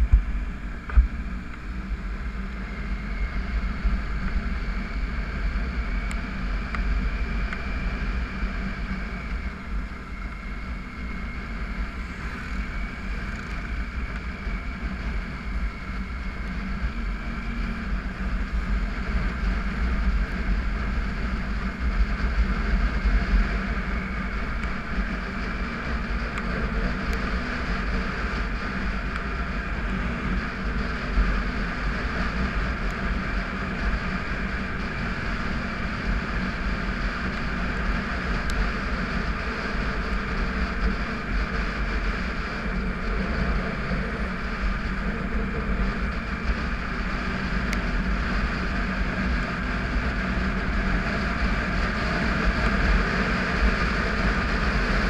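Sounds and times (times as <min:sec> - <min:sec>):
wind noise on microphone: 0:00.0 - 0:55.0.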